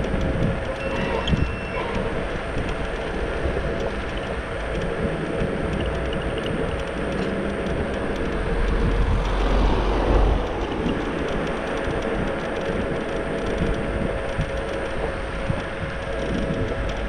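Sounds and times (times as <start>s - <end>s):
scooter rattle: 0.0s - 17.0s
wind rumble on microphone: 0.0s - 17.0s.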